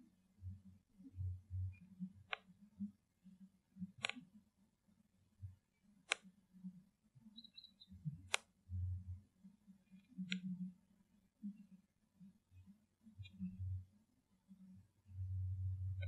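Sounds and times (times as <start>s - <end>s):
sharp clicks: 4.0s - 4.2s.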